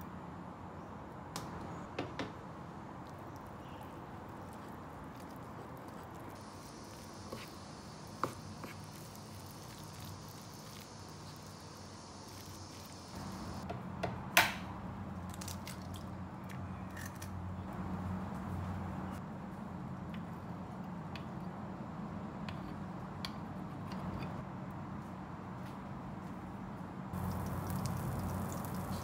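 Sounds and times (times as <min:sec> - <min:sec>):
soft hiss: 0:06.4 - 0:13.6.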